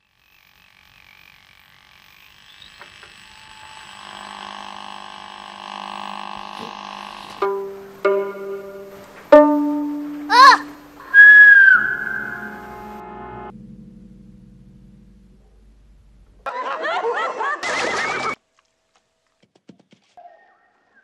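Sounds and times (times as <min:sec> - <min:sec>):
sliding tone: 0:03.1 - 0:16.5
plucked string notes: 0:06.6 - 0:16.4.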